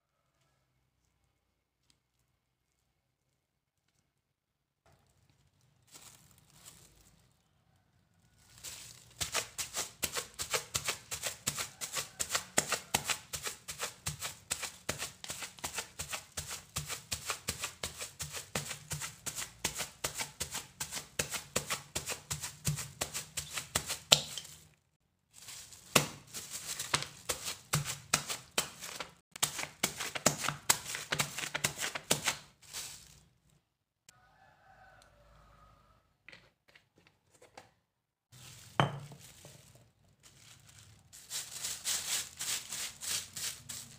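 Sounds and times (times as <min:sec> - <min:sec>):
bottle pounding rice: 0:09.2 - 0:24.5.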